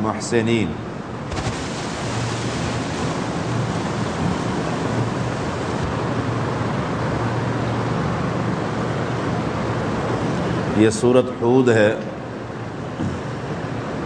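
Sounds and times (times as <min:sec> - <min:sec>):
steady hiss: 0:01.2 - 0:06.7.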